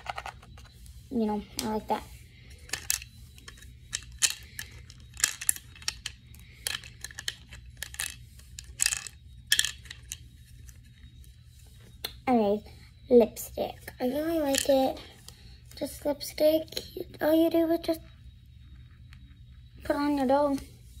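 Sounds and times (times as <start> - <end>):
plastic toys clicking and rattling: 0.0 - 0.7, 2.6 - 10.2, 14.3 - 14.9
steady low hum: 0.0 - 21.0.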